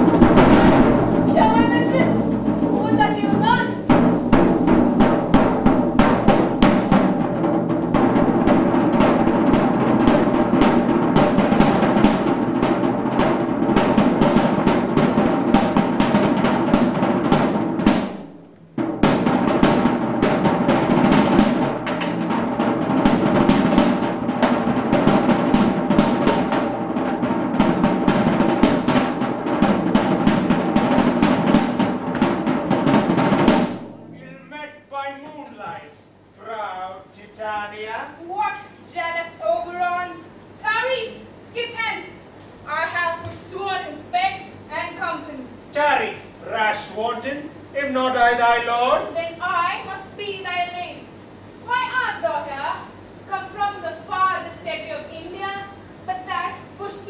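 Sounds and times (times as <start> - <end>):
fast dense drumming: 0.0 - 34.6, 38.3 - 57.0.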